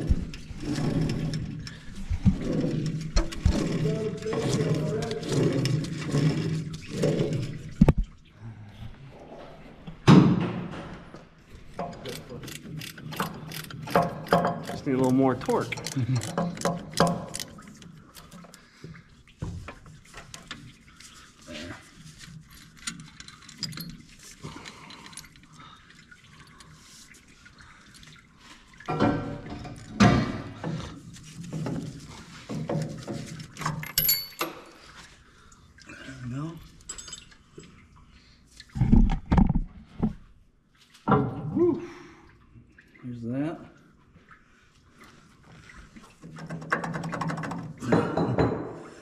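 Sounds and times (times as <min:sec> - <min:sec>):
tools clicking and tapping: 0:11.8 - 0:18.6.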